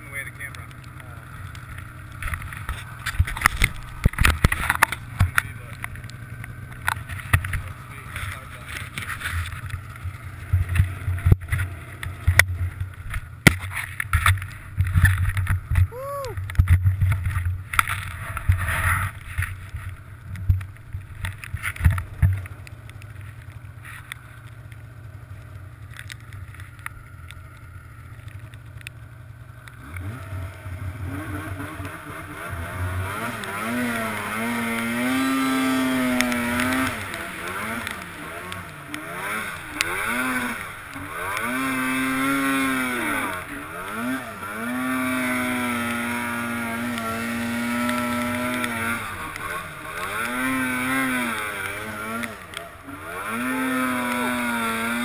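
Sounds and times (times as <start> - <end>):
snowmobile engine revving: 0.0 - 12.4, 29.5 - 55.0.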